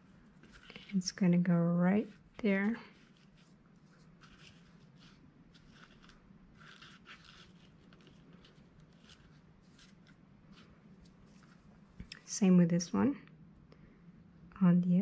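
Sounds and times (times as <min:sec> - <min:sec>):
soft rustles of paper pieces: 0:00.1 - 0:01.2, 0:01.9 - 0:12.2.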